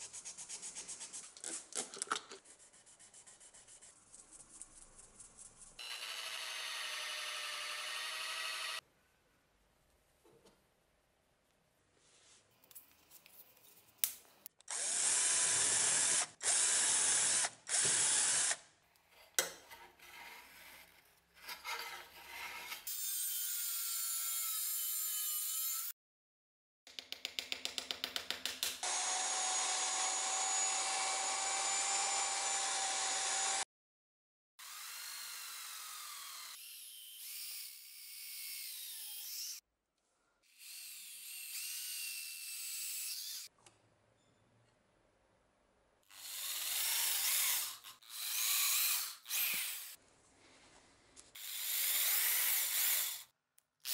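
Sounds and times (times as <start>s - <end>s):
electric drill boring wood: 5.8s - 8.8s, 14.7s - 18.6s, 28.8s - 33.7s, 34.6s - 36.7s, 46.1s - 50.0s, 51.4s - 53.3s
power tools running: 28.8s - 33.6s.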